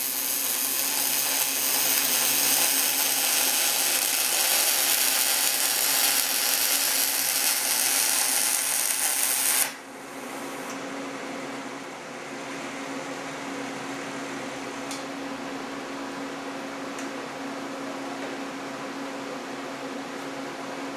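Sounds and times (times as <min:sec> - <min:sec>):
welding arc crackling: 0:00.0 - 0:09.9.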